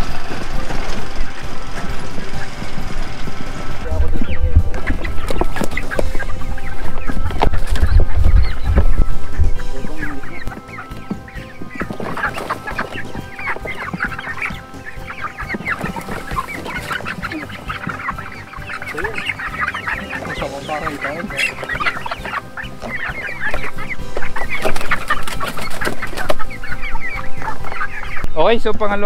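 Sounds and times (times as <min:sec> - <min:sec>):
young chickens calling and clucking: 0:00.0 - 0:29.0
birds flapping wings: 0:10.4 - 0:23.7, 0:24.4 - 0:26.6.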